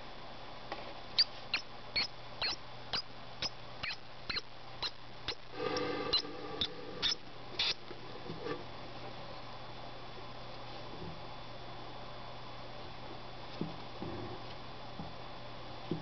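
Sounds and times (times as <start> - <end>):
mouse squeaking: 1.2 - 5.4, 6.1 - 7.8.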